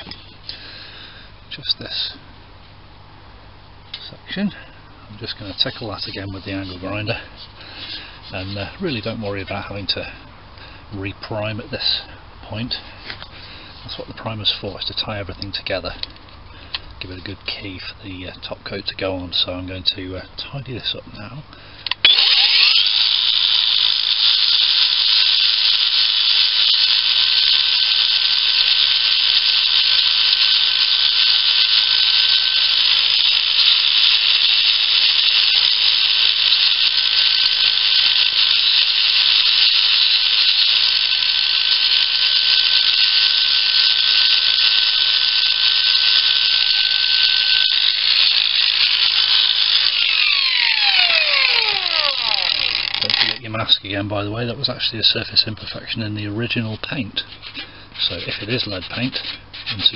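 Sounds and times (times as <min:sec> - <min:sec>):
angle grinder whining: 0:00.0 - 0:01.0, 0:05.2 - 0:09.6, 0:21.8 - 0:53.5, 0:56.7 - 0:59.9
grinder spinning down: 0:22.0 - 0:53.5, 0:56.9 - 0:59.9.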